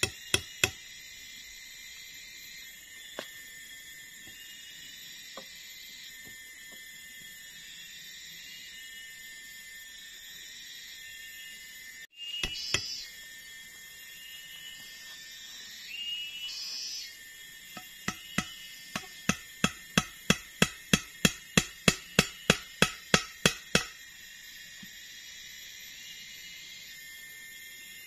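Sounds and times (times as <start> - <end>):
hammer striking wood: 0.0 - 0.8, 17.8 - 23.9
insects droning: 0.0 - 28.0.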